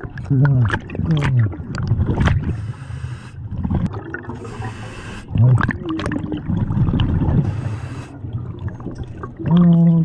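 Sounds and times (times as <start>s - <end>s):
regulator hissing inhale: 2.5s - 3.4s, 4.4s - 5.3s, 7.4s - 8.2s
gurgling exhaust bubbles: 3.5s - 4.6s, 5.2s - 10.0s.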